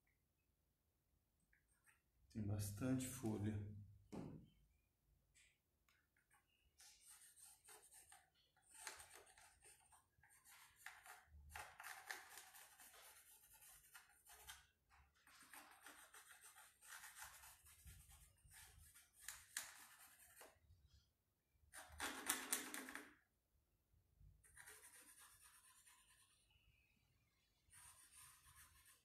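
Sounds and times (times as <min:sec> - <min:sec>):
pencil scratching on wood: 0:06.9 - 0:20.6, 0:24.4 - 0:26.6, 0:27.5 - 0:29.0.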